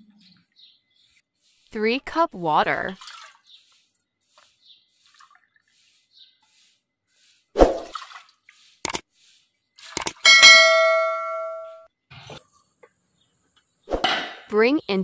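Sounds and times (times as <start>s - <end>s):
faint water drips: 2.9s - 5.9s
sharp click: 10.0s - 10.2s.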